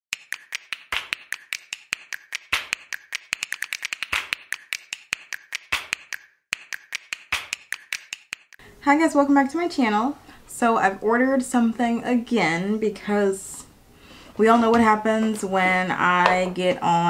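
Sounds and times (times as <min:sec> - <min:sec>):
percussive beat of clicks and taps: 0:00.1 - 0:08.6.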